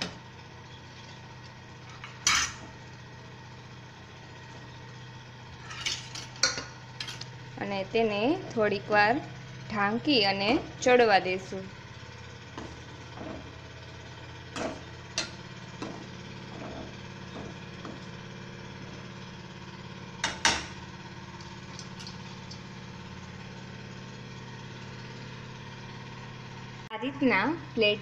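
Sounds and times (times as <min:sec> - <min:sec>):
low mechanical hum: 0:00.0 - 0:28.0
steel ladle scraping a pan: 0:01.9 - 0:02.7, 0:05.6 - 0:07.3, 0:14.6 - 0:18.1.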